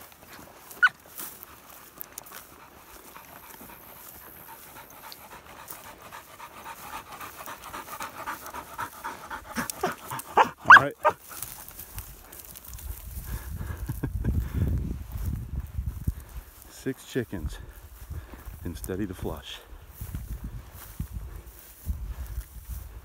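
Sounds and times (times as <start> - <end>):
dog panting hard: 2.3 - 11.8.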